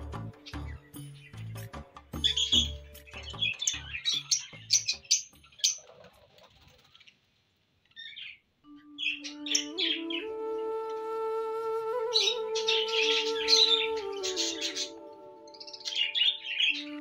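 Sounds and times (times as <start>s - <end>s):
background music with a beat: 0.0s - 4.0s
parrots chirping rapidly: 0.2s - 6.1s, 7.9s - 10.2s, 12.1s - 17.0s.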